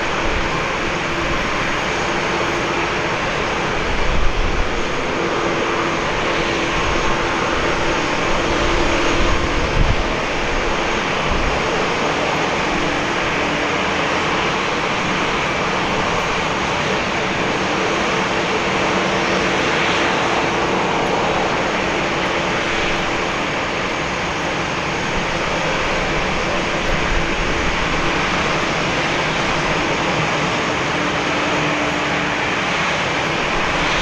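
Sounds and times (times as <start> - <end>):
jet engines rushing: 0.0 - 34.0.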